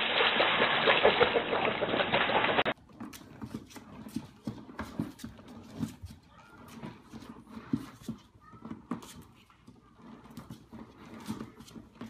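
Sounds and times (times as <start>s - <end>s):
dog splashing and paddling: 0.0s - 2.8s
faint scratches on plastic toy: 2.9s - 12.0s.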